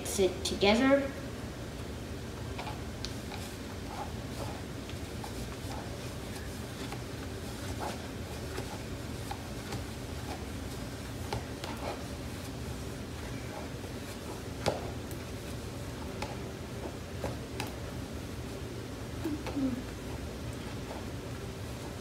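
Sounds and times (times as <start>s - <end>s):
low room hum: 0.0s - 22.0s
spatula tapping and scraping plastic: 2.6s - 12.1s, 16.0s - 17.8s.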